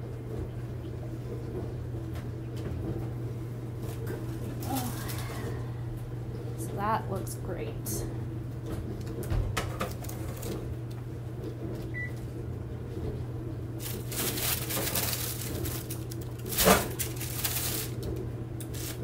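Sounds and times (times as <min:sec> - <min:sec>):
low hum: 0:00.0 - 0:18.6
parchment paper rustling: 0:03.8 - 0:05.6, 0:13.8 - 0:19.0.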